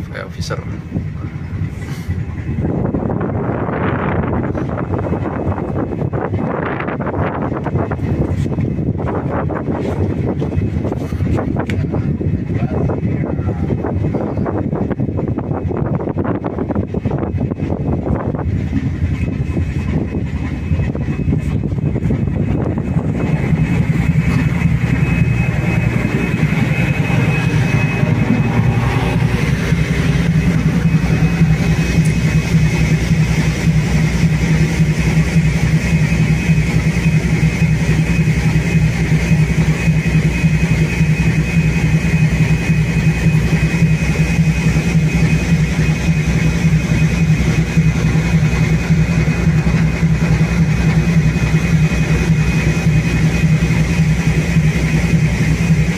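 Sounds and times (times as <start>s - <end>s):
high whine: 0.0s - 55.9s
ship engine low drone: 0.0s - 55.9s.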